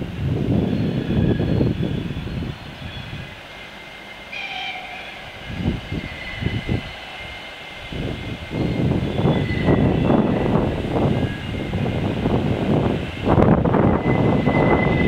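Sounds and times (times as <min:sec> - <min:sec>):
wind buffeting microphone: 0:00.0 - 0:04.1, 0:05.2 - 0:15.0
electric train whistle: 0:04.2 - 0:10.6, 0:13.4 - 0:15.0.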